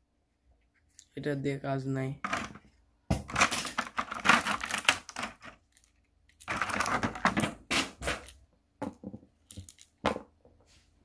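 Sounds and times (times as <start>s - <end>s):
plastic packaging crackling: 3.3s - 7.5s.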